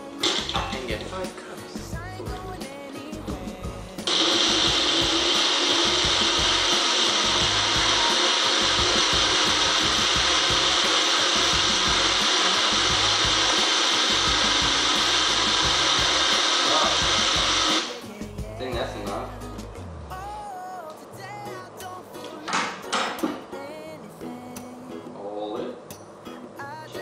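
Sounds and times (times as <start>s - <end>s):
blender motor running: 4.1s - 17.9s.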